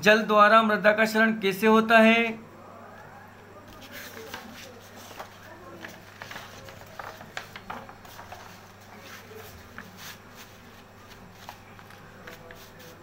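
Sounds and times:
paper rustling: 3.7 - 13.0.

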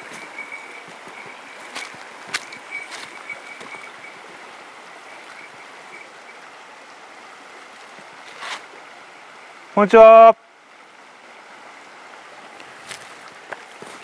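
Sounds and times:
footsteps on gravel and grass: 0.0 - 4.1, 12.8 - 14.0
faint high chirping tone: 0.0 - 4.3, 5.0 - 6.4
steady outdoor hiss: 0.0 - 14.0.

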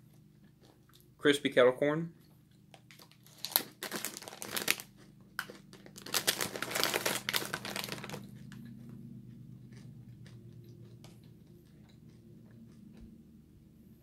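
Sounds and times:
snack bag crinkling: 2.7 - 8.7.

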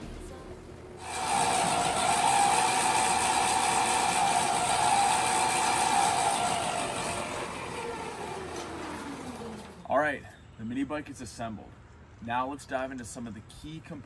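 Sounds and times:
electric motor whining: 1.0 - 9.9.

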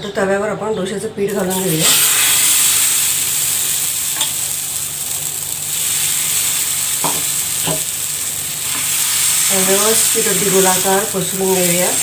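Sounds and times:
batter sizzling on hot pan: 1.5 - 12.0
ladle clicking on pan: 3.3 - 12.0.

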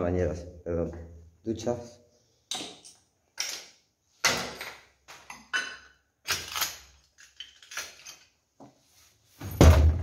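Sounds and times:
hard objects clinking: 5.4 - 8.4.

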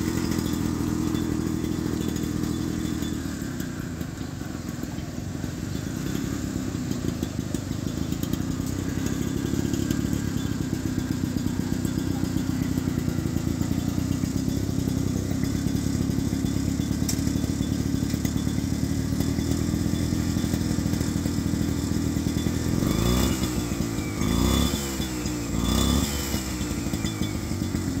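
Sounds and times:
tiller engine running: 0.0 - 28.0.

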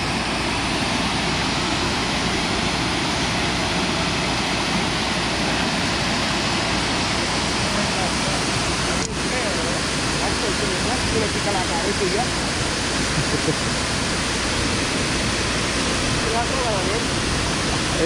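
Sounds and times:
water pouring over a dam: 0.0 - 18.0.

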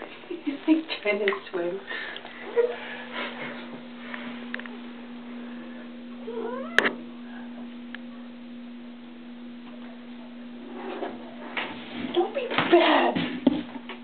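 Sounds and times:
steady low hum: 0.0 - 14.0
cat meowing: 6.2 - 6.8.

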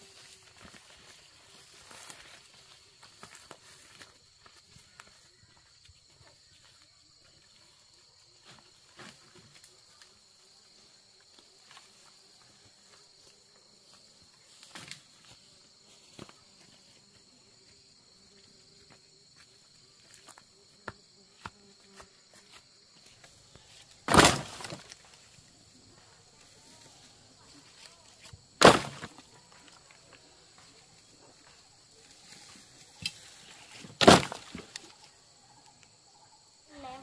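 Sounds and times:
branches clattering onto woodpile: 24.0 - 25.3, 28.2 - 29.7, 32.2 - 35.0.

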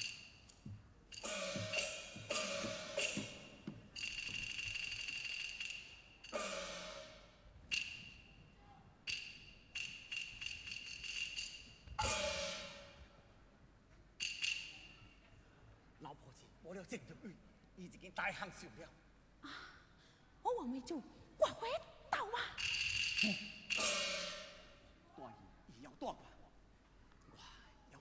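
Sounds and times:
wooden clappers: 0.0 - 6.8, 7.7 - 8.4, 9.0 - 12.8, 14.2 - 15.3, 22.6 - 24.6
cymbals crashing: 1.2 - 4.6, 5.6 - 8.3, 9.1 - 13.2, 22.6 - 24.8
gongs: 1.2 - 8.4, 9.1 - 13.2, 22.8 - 24.8.

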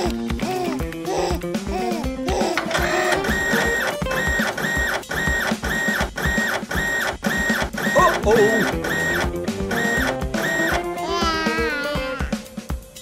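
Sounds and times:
background music: 0.0 - 6.2, 7.8 - 13.0
printer whirring: 2.6 - 10.9.

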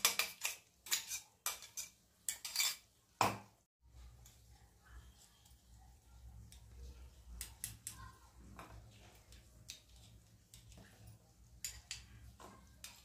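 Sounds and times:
spoon tapping and scraping steel bowl: 0.0 - 3.4, 8.6 - 13.0.

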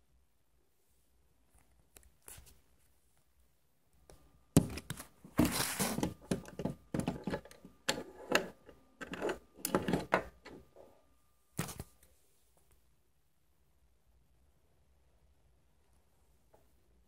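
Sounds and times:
rubbing and scraping: 4.6 - 10.6.

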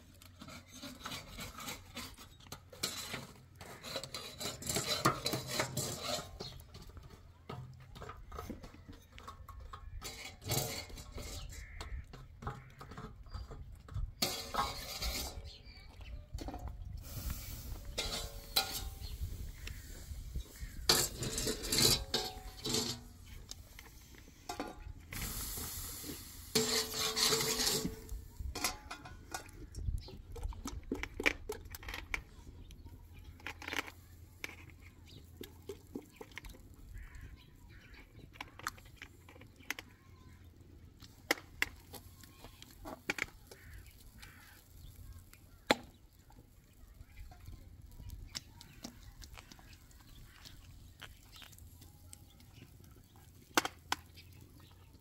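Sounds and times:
clinks of pots and dishes: 14.2 - 15.5, 18.0 - 19.2, 20.9 - 23.2, 24.5 - 25.2, 26.5 - 29.7
rushing scraping noise: 17.0 - 29.3.

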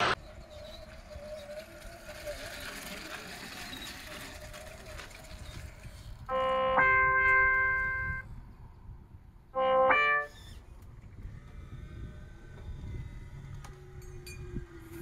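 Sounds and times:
electronic keyboard-like tones: 6.3 - 8.2, 9.6 - 10.3.

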